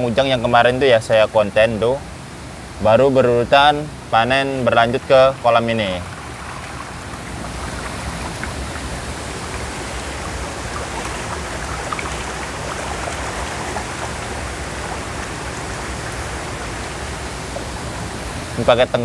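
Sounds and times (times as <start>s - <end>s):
water running and splashing: 4.1s - 18.7s.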